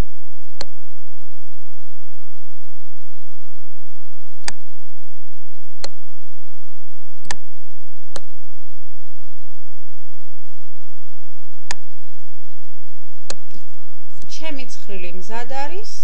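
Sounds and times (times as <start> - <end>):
thin hum: 0.0 - 16.0
computer mouse clicks: 0.6 - 0.8, 4.4 - 4.6, 5.8 - 6.0, 7.2 - 7.5.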